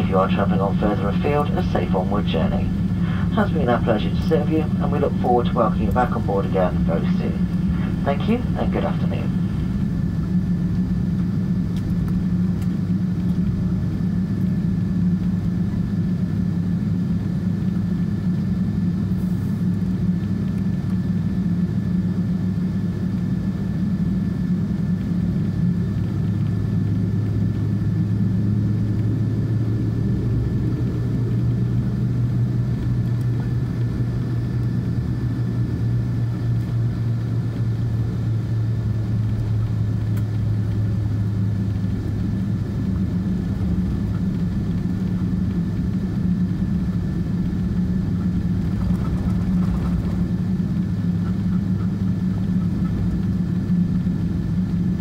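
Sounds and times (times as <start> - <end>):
jet engines idling low rumble: 0.0 - 55.0.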